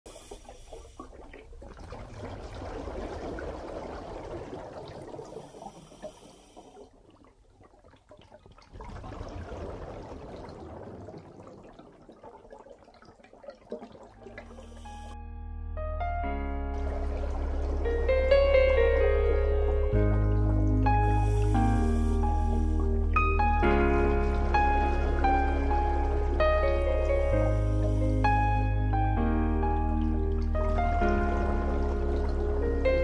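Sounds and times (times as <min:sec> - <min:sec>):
underwater bubbles gurgling: 0:00.1 - 0:15.2, 0:16.6 - 0:33.0.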